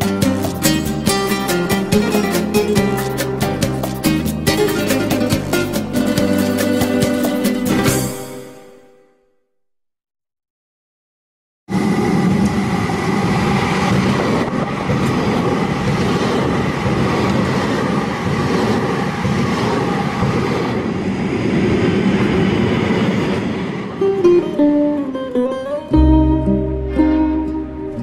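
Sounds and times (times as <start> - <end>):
tram electric whine: 0.0 - 8.8, 11.7 - 28.0
wheels rolling on track: 11.7 - 24.0.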